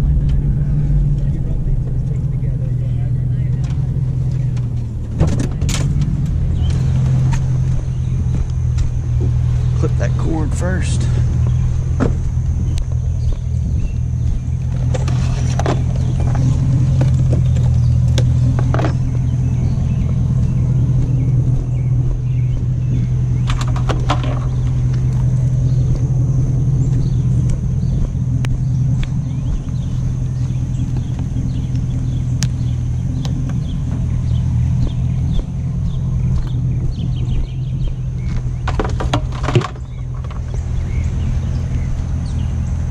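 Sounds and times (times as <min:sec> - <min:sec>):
truck engine running: 0:00.0 - 0:42.9
light knocks and rattles: 0:36.3 - 0:40.8.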